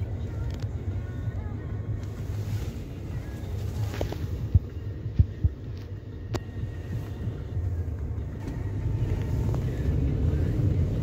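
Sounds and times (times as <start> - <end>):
car driving low rumble: 0.0 - 11.0
soft low thumps: 3.8 - 7.4.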